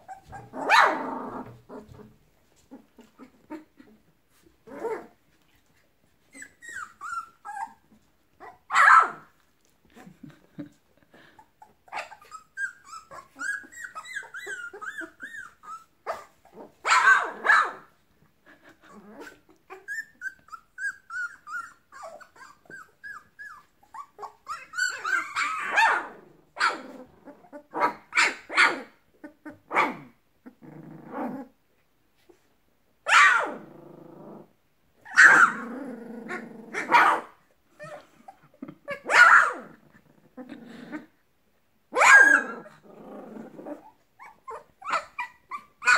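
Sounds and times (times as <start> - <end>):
puppies yipping barks: 0.0 - 1.0, 8.7 - 9.3, 11.9 - 17.9, 24.2 - 26.9, 33.1 - 33.6, 35.1 - 35.6, 36.8 - 37.4, 38.9 - 39.6, 42.0 - 42.7, 44.3 - 45.9
puppies whining: 0.0 - 4.0, 6.2 - 8.7, 11.4 - 16.8, 18.7 - 26.0, 43.5 - 45.9
puppies growling: 0.0 - 5.2, 9.9 - 16.8, 18.4 - 28.1, 28.8 - 31.6, 33.4 - 37.0, 37.7 - 41.2, 42.3 - 45.8.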